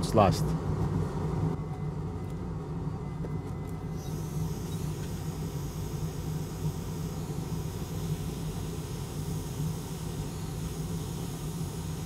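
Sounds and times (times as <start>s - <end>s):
low hum: 0.0s - 12.0s
hot air station hiss: 3.9s - 12.0s.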